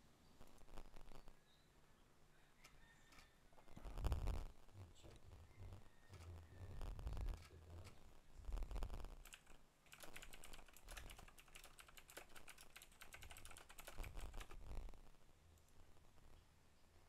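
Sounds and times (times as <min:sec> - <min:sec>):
keyboard key clicks: 0:09.2 - 0:14.6.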